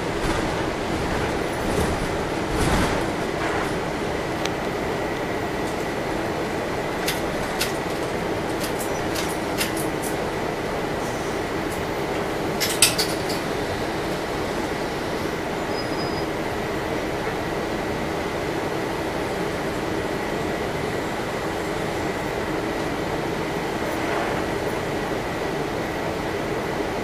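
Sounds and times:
loud clatter: 0:00.0 - 0:04.6
rattles and clicks: 0:00.0 - 0:04.6, 0:07.0 - 0:10.3, 0:11.7 - 0:13.5
bus drone from inside: 0:00.0 - 0:27.0.

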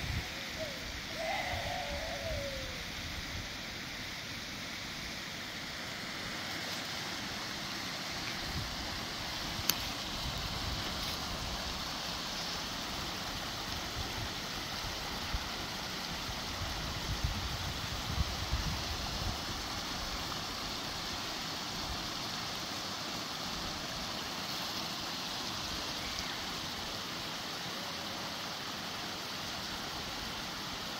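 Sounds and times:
stream trickling over stones: 0:04.3 - 0:30.9.

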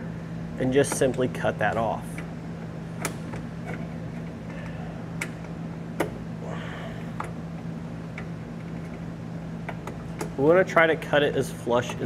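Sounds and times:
low hum: 0:02.1 - 0:10.5.

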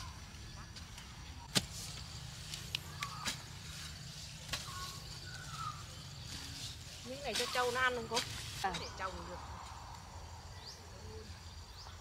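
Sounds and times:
hoe striking soil: 0:01.4 - 0:03.6.

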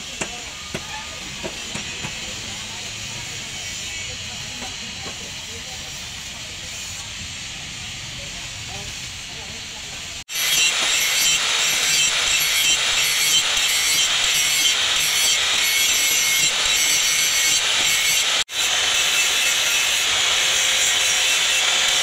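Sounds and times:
angle grinder grinding steel: 0:10.2 - 0:22.0.

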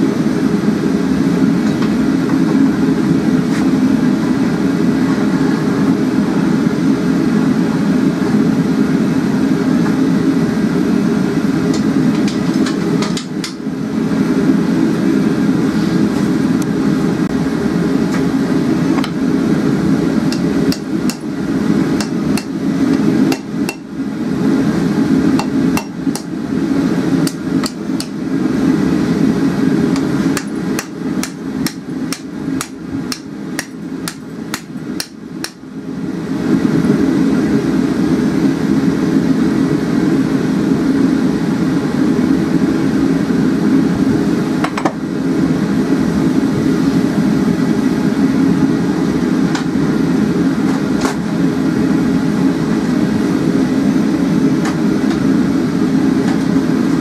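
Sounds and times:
gas forge burner rushing: 0:00.0 - 0:57.0
hammer striking steel on anvil: 0:20.3 - 0:21.3, 0:23.3 - 0:23.9, 0:30.4 - 0:35.6.

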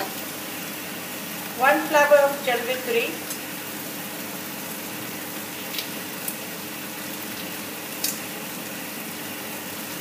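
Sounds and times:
masala sizzling in oil: 0:00.0 - 0:10.0.

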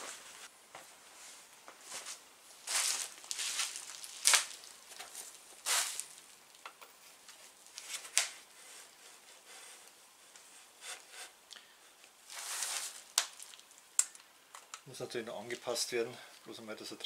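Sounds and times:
bicycle saddle rustling: 0:01.1 - 0:06.5, 0:07.2 - 0:08.5, 0:12.2 - 0:13.7.

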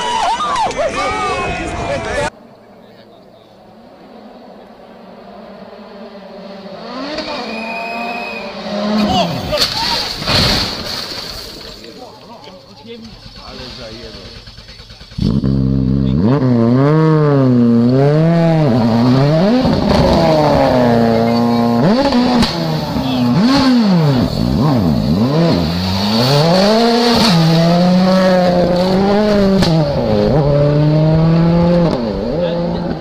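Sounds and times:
rally car engine revving: 0:03.5 - 0:10.8, 0:13.0 - 0:33.0.

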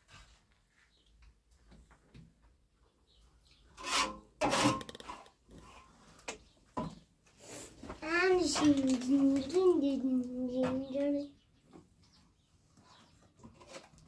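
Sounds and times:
hand tool scraping wood: 0:03.8 - 0:06.0.

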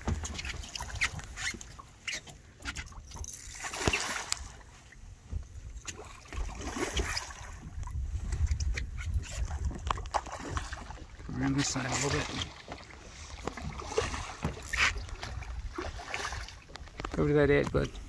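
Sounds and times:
fish splashing in water: 0:00.0 - 0:04.7, 0:05.8 - 0:07.8, 0:08.8 - 0:16.8.

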